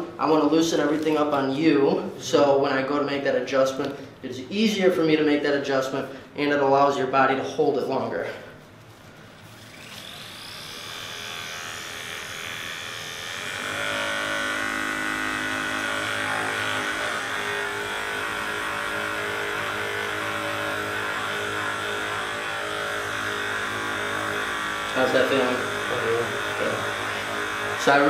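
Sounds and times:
massage gun motor whine: 9.4 - 28.0.

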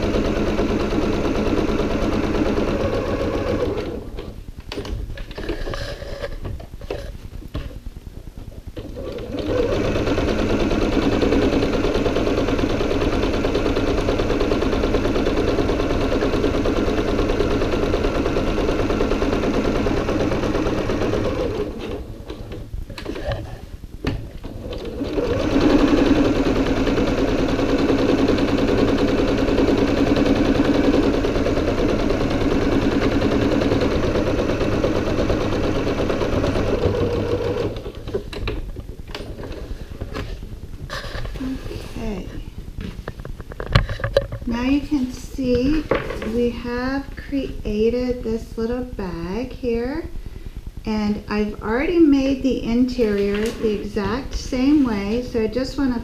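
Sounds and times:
electric sewing machine stitching: 0.0 - 4.8, 8.8 - 23.2, 24.4 - 40.3.

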